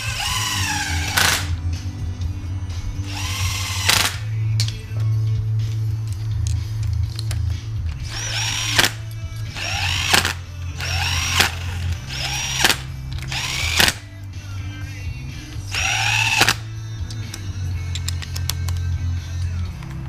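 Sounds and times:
power driver motor whine: 0.0 - 1.6, 3.0 - 4.2, 8.0 - 14.1, 15.7 - 16.7.

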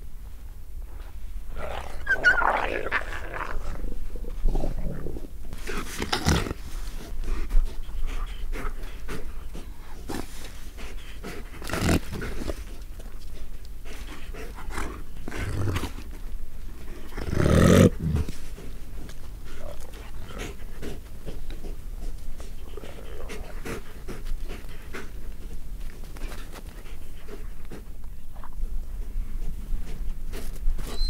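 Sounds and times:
wolves growling and snarling: 1.5 - 12.9, 13.9 - 25.3.

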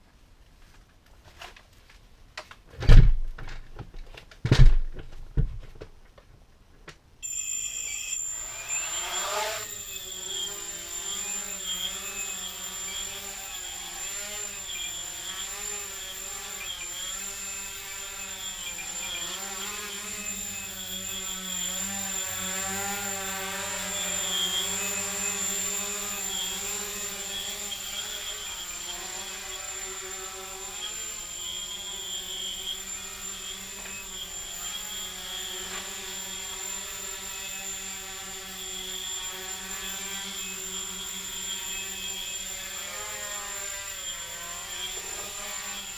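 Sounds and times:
quadcopter motors buzzing: 7.2 - 45.9.

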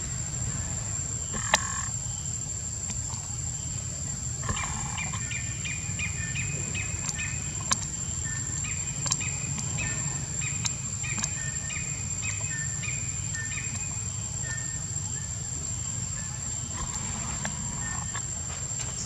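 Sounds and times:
bird chirping: 4.4 - 19.0.

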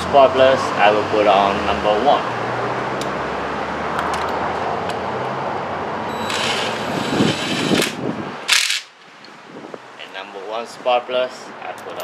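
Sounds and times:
loud rush of noise: 5.4 - 9.8
fan whirring: 6.1 - 9.0.

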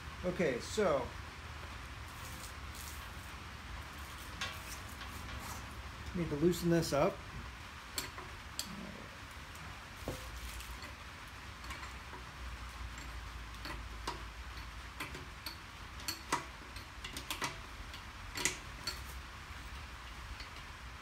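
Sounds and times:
wrench clicking on metal bolts: 11.6 - 12.2, 12.8 - 20.8.

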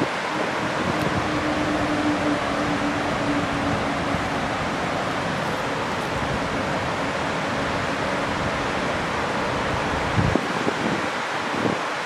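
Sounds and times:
river rapids roaring: 0.0 - 12.0.

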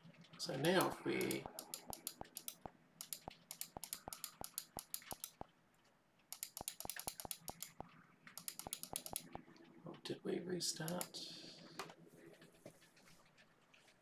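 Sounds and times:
typing on computer keyboard: 0.6 - 5.4, 6.3 - 7.8, 8.4 - 9.4.

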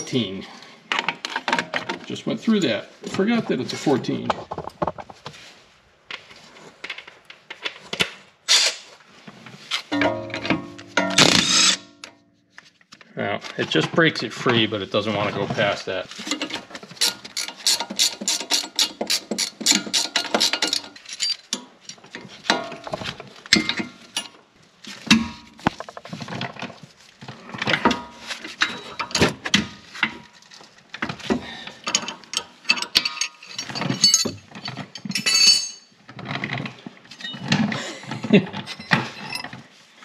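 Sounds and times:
ratcheting wrench clicking: 17.0 - 21.4.

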